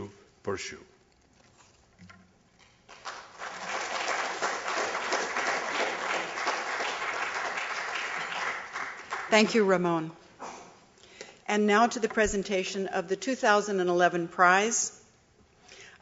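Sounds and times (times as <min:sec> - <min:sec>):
audience applause: 0:02.9 - 0:09.6.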